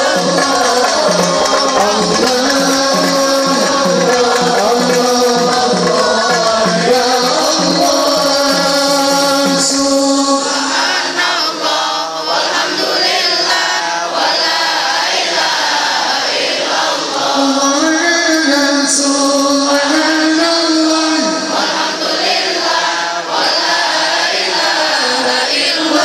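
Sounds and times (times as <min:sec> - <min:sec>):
percussion beat: 0:00.0 - 0:13.7, 0:17.3 - 0:22.8
devotional group singing: 0:00.0 - 0:26.0.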